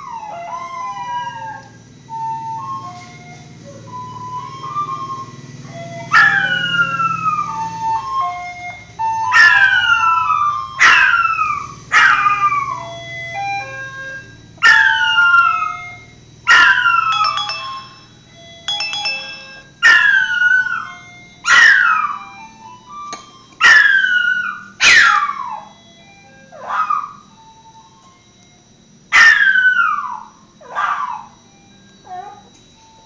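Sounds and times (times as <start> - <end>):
ice cream van jingle: 0.0 - 33.0
dog howling: 29.2 - 31.4, 32.0 - 32.5.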